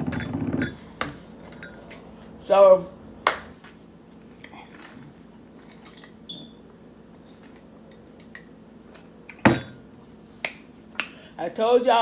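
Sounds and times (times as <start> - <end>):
hand clap: 3.2 - 3.8.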